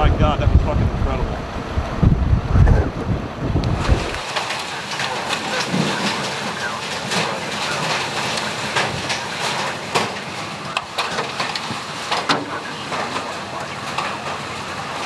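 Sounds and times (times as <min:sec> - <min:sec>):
wind and rain rushing: 0:00.0 - 0:15.0
hail banging on van: 0:03.6 - 0:15.0.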